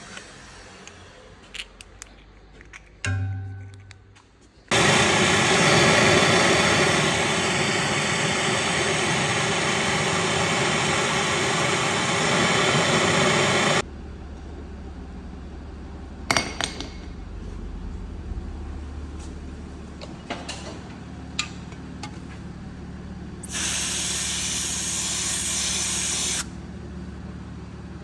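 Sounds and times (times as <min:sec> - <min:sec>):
blowtorch hissing: 0:04.7 - 0:13.8, 0:23.4 - 0:26.5.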